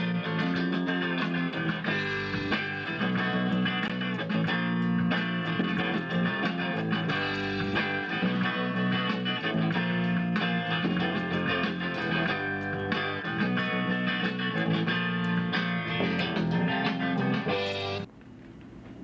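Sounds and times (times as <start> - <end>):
bass guitar notes: 0.0 - 18.1
electric guitar chords: 0.0 - 18.1.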